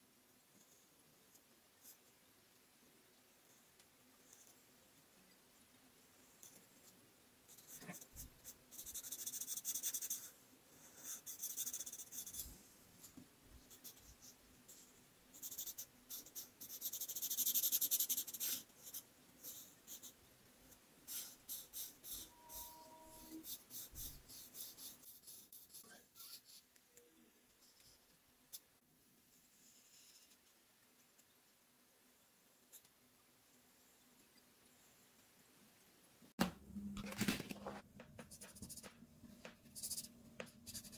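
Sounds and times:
marker scratching on paper: 7.5 - 10.3, 10.9 - 12.5, 13.7 - 20.2, 21.1 - 26.7, 38.3 - 39.0, 39.6 - 40.9.

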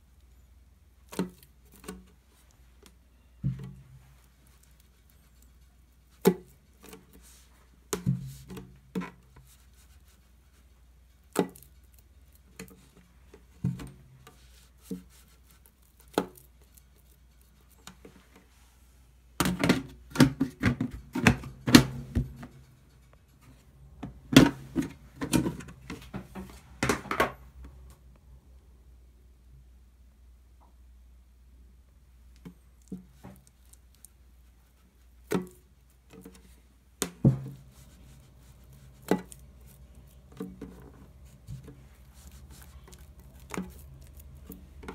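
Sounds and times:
dough slapping against plastic: 6.0 - 10.2, 32.4 - 44.9.

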